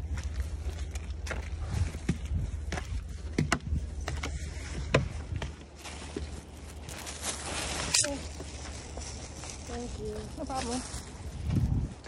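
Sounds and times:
footsteps on wooden stairs: 0.0s - 6.5s
low microphone rumble: 0.0s - 7.7s, 8.3s - 12.0s.

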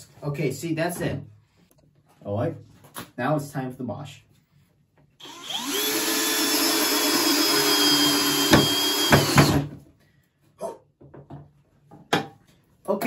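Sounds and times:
cordless drill driving a screw: 5.2s - 9.6s.

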